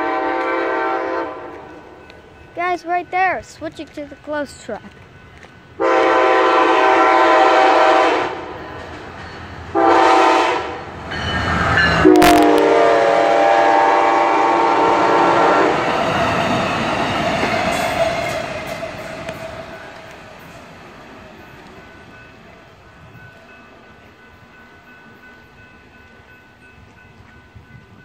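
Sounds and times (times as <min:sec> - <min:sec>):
train horn blasts: 0:00.0 - 0:01.9, 0:05.8 - 0:08.6, 0:09.7 - 0:10.9, 0:12.0 - 0:16.0
rumble and clatter of train cars: 0:00.0 - 0:28.0.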